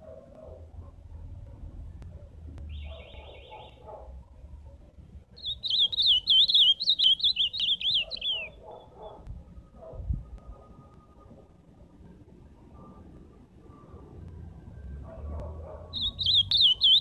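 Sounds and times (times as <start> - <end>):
bird singing warbled phrase: 2.7 - 3.8, 5.4 - 8.9, 15.9 - 17.0
faint fast bird trill: 5.4 - 8.9, 15.9 - 17.0.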